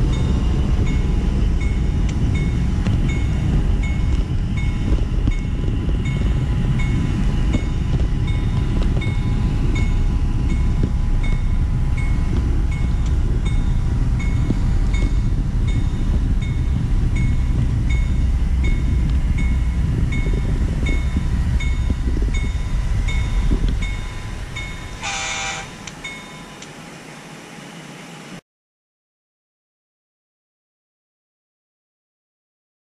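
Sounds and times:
short train horn blast: 25.0s - 25.9s.

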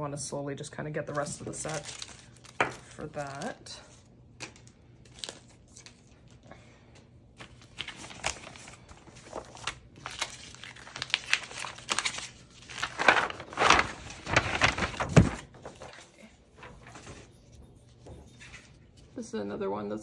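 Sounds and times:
packaging crinkling: 1.1s - 3.7s, 4.4s - 6.4s, 7.4s - 16.0s.

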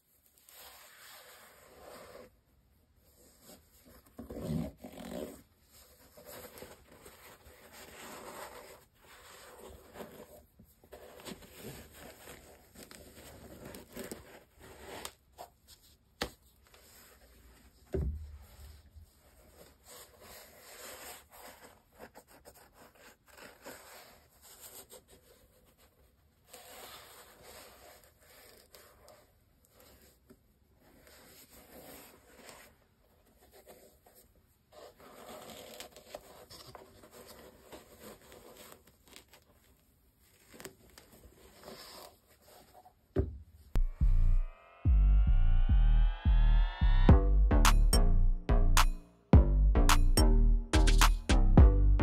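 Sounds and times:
sharp click: 48.8s - 49.0s, 50.8s - 51.6s.

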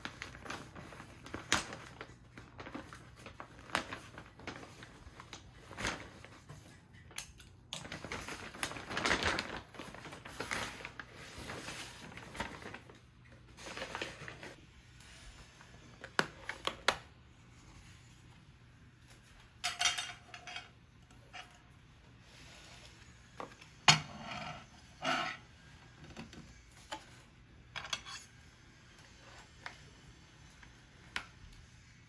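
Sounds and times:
household objects clicking and clinking: 19.6s - 21.6s.

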